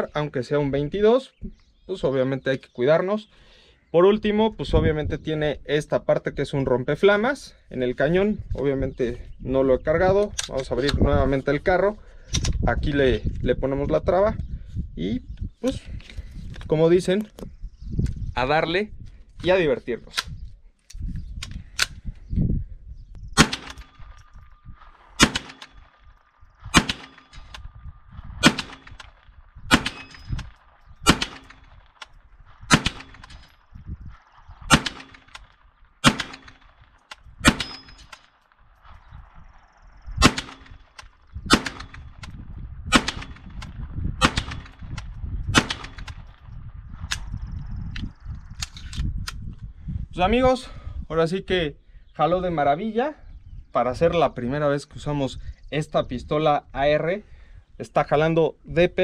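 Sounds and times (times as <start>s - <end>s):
pistol shots: 23.4s - 24.3s, 25.0s - 27.6s, 28.4s - 33.6s, 34.7s - 38.5s, 40.2s - 42.2s, 42.9s - 46.4s.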